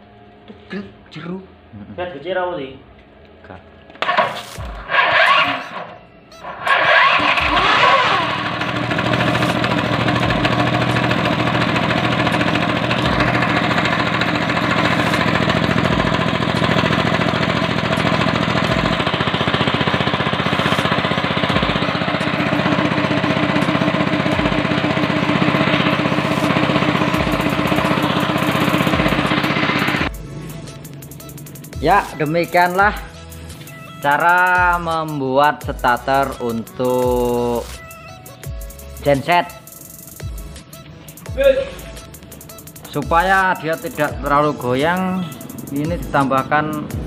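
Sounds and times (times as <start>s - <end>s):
petrol engine running: 3.8s - 34.5s, 36.3s - 47.0s
piston air compressor: 3.9s - 34.5s, 36.1s - 47.0s.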